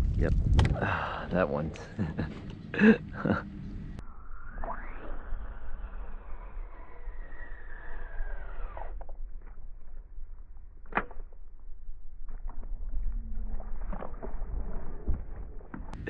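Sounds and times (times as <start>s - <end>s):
low wind rumble: 0.0s - 16.0s
fishing reel spool whirring: 4.0s - 9.3s.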